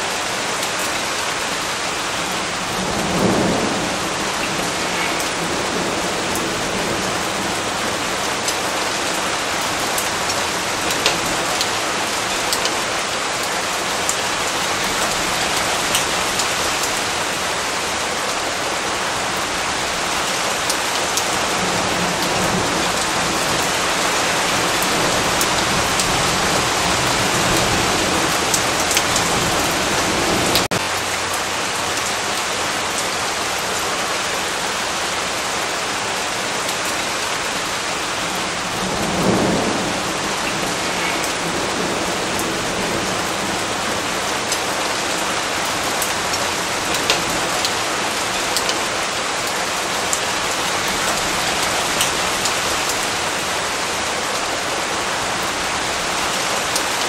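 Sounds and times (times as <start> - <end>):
heavy rain falling: 0.0 - 57.0
raindrop ticks: 9.9 - 12.8, 28.5 - 29.2, 46.0 - 47.8, 48.4 - 48.8.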